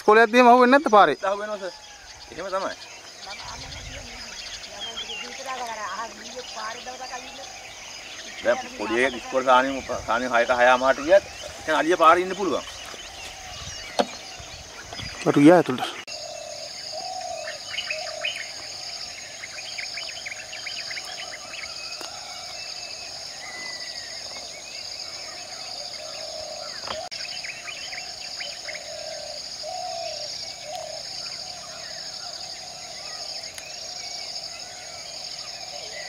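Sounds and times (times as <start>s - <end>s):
birds chirping: 0.0s - 36.0s.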